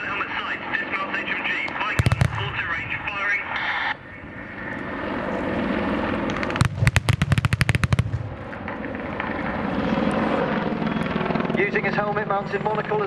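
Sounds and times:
rapid pyrotechnic bangs: 1.9 - 4.0, 6.2 - 8.7.

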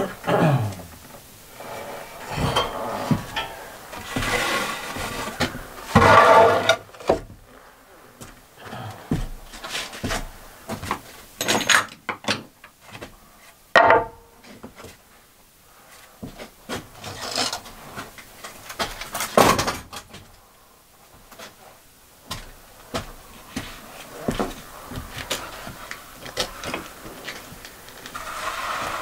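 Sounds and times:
footsteps on board floor: 2.3 - 6.4, 8.2 - 11.2, 16.2 - 17.0, 22.2 - 27.6
wooden boards and tools knocking: 4.0 - 7.4, 13.8 - 14.8.

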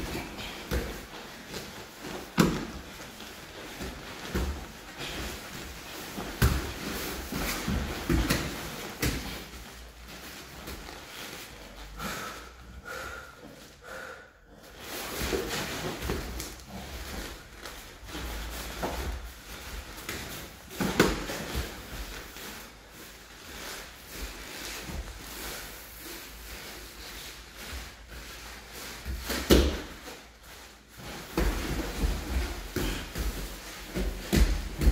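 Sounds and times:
bodies thumping on mat: 31.0 - 34.9.

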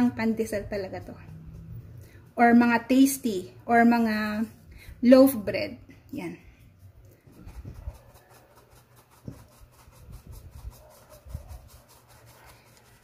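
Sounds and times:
flour sifted through metal sieve: 6.3 - 13.0.

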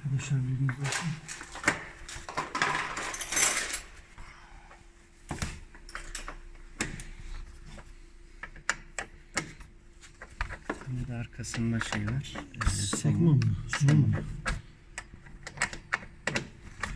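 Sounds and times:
sharp clicks and taps: 11.4 - 16.5.

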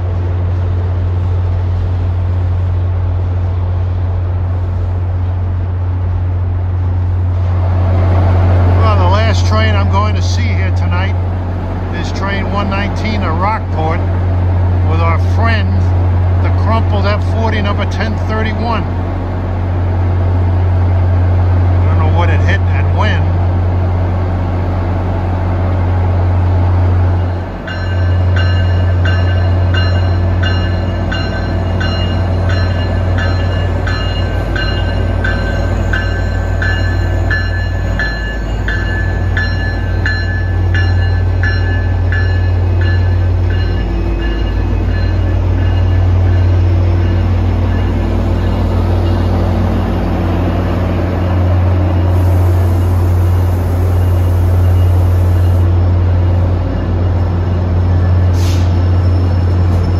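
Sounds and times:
diesel locomotive engine drone: 0.0 - 59.9
locomotive bell ringing: 8.7 - 11.2, 27.2 - 59.9.

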